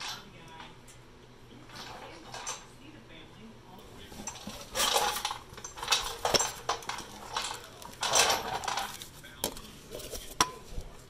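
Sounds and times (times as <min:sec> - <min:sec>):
metal tools clinking and rattling: 0:01.7 - 0:02.7, 0:03.9 - 0:10.7.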